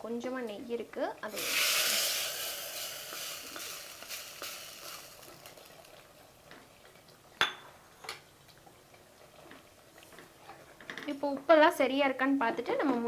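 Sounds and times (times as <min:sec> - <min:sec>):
hot ghee sizzling: 0:01.2 - 0:06.5.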